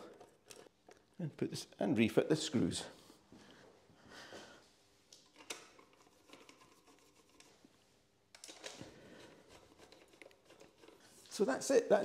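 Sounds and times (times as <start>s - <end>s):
screwdriver clicks and scrapes: 0.0s - 1.0s, 5.2s - 7.6s, 8.4s - 11.0s
small handling noises: 0.0s - 1.4s, 3.0s - 11.7s.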